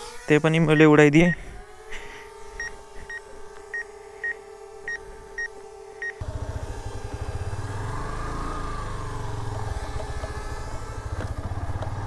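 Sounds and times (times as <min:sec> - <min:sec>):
drone hovering hum: 0:00.0 - 0:12.0
motorcycle engine running: 0:04.8 - 0:12.0.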